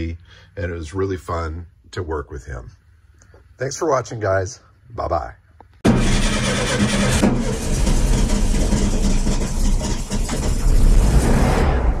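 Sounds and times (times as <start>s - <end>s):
car engine idling: 5.8s - 10.9s.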